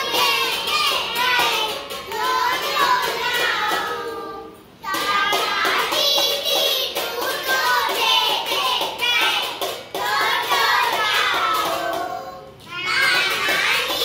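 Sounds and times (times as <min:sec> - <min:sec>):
children singing together: 0:00.0 - 0:14.0.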